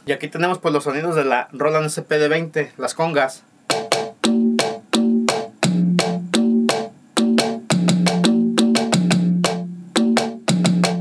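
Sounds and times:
conga drum strikes: 3.7s - 11.0s.

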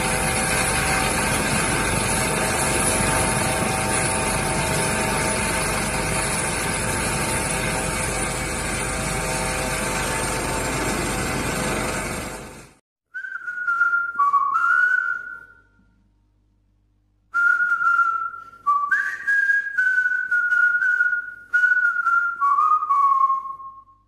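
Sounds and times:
helicopter noise: 0.0s - 12.8s
person whistling a tune: 13.1s - 15.8s, 17.3s - 24.0s.

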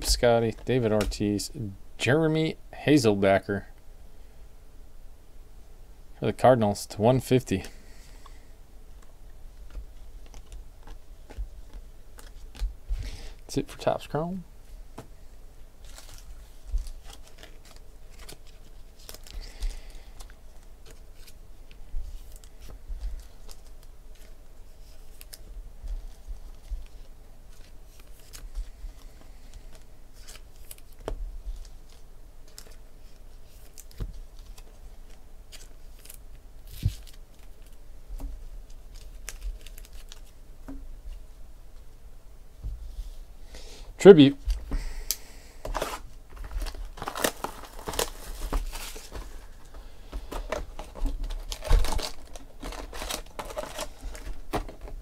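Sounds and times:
trading cards being handled: 44.5s - 54.9s.

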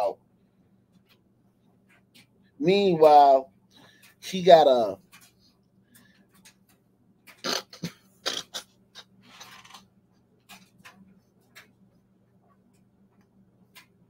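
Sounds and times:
faint steady hum: 0.0s - 14.0s
small clicks and breaths: 0.4s - 2.6s, 3.6s - 4.2s, 5.0s - 7.4s.

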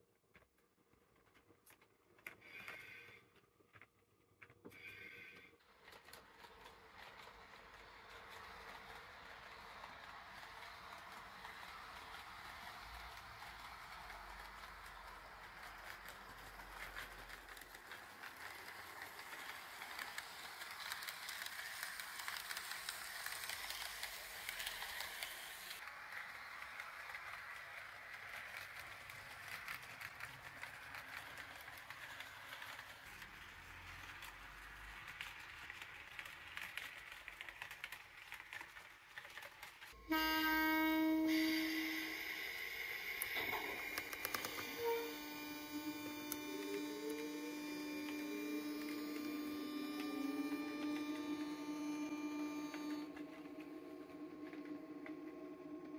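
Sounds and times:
model train running on track: 4.8s - 55.9s
loud horn-like tone: 40.0s - 54.6s.

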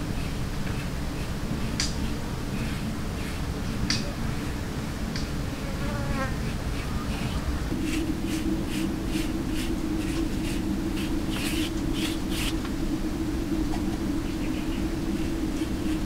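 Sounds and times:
low hum: 0.0s - 16.0s
rhythmic scraping strokes: 6.4s - 12.8s.

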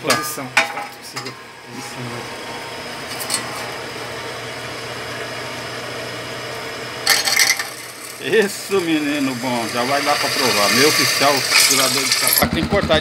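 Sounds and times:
drill press motor running: 2.3s - 12.4s
drill bit grinding metal: 8.1s - 12.4s.

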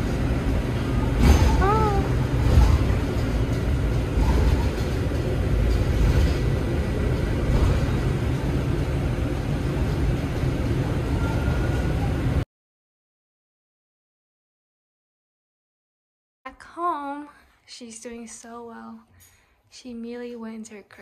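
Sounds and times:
vehicle cabin rumble: 0.0s - 12.4s.

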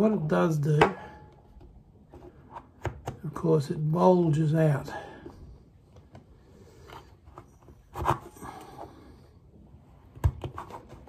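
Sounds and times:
plastic card scraping and tapping: 10.2s - 11.0s.

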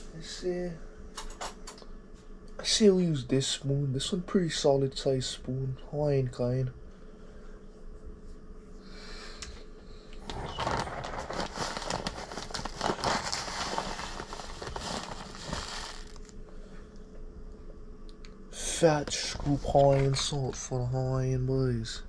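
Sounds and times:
plastic bag crinkling: 10.2s - 16.4s.

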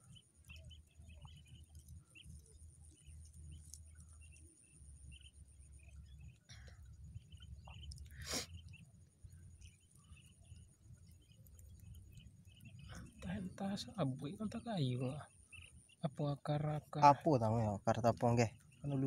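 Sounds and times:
soft crackles and chirps: 0.0s - 19.0s.

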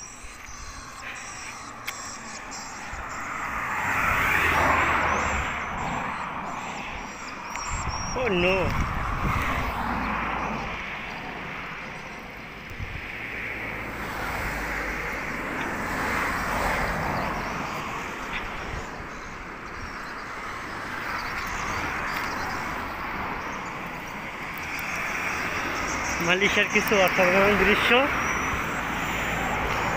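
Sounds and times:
road traffic passing: 0.0s - 29.9s
wind rumble on microphone: 7.0s - 11.5s, 12.4s - 17.7s.

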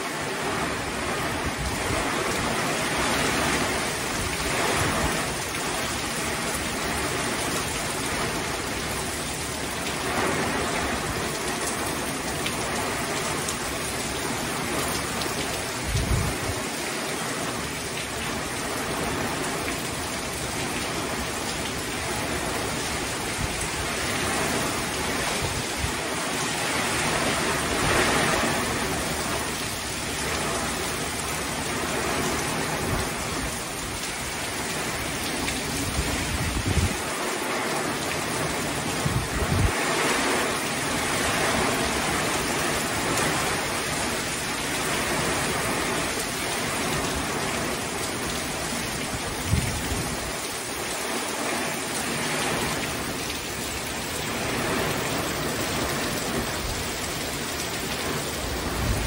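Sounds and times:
heavy rain pouring: 0.0s - 59.0s.

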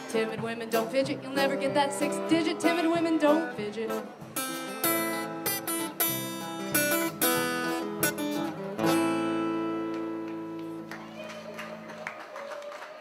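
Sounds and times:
acoustic guitar strumming chords: 0.0s - 10.6s.

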